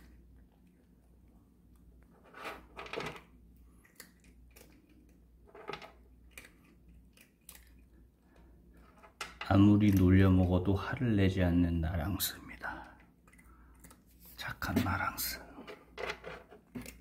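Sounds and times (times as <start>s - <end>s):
cat crunching treats: 3.6s - 5.4s, 6.0s - 8.7s, 12.7s - 14.4s.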